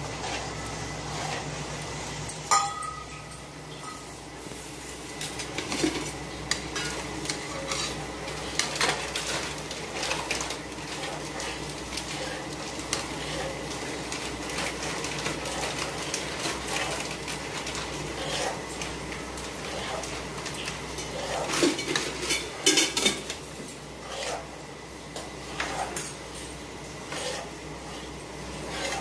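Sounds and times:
spatula scraping flour in pan: 0:00.0 - 0:02.0, 0:04.6 - 0:29.0
spatula clinking against pan: 0:02.5 - 0:04.0.

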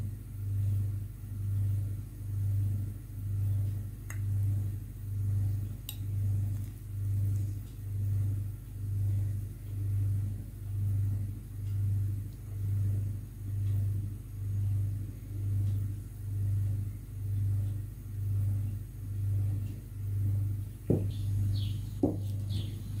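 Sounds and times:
throbbing low hum: 0:00.0 - 0:23.0
short knocks: 0:20.9 - 0:21.2.

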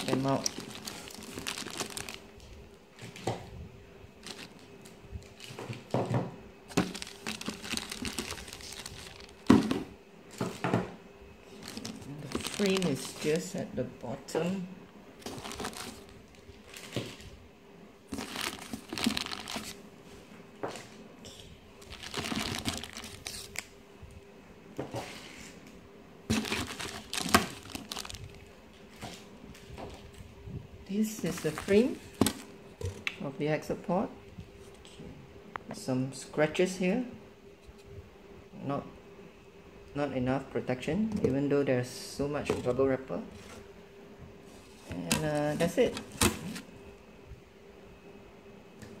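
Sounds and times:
plastic bags crinkling: 0:00.0 - 0:03.2, 0:04.2 - 0:05.9, 0:06.7 - 0:10.7, 0:11.4 - 0:14.2, 0:15.2 - 0:17.3, 0:18.1 - 0:19.8, 0:21.8 - 0:23.7, 0:26.3 - 0:29.0, 0:31.1 - 0:33.0, 0:44.7 - 0:46.7.

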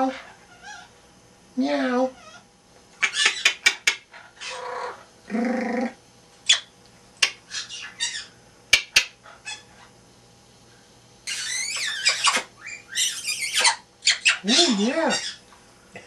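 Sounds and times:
parrot warble: 0:00.0 - 0:00.9, 0:02.2 - 0:09.9, 0:11.2 - 0:15.4
parrot clicks and squeaks: 0:08.7 - 0:09.6, 0:11.3 - 0:14.4.

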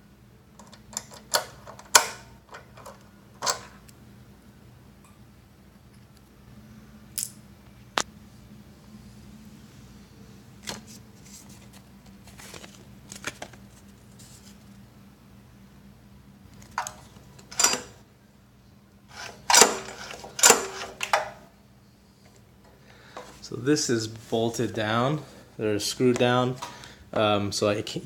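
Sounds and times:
faint steady hum: 0:00.0 - 0:28.0
paper tag rustling: 0:10.6 - 0:14.7.

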